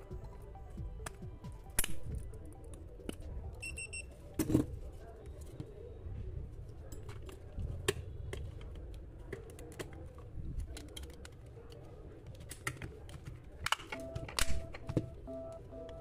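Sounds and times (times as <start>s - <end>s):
plastic parts clicking: 6.9s - 15.1s.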